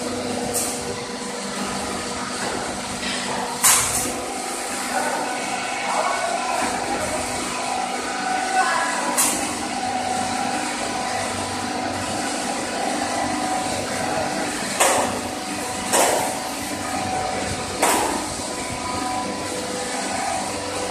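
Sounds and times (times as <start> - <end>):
machinery hum: 0.0 - 20.9.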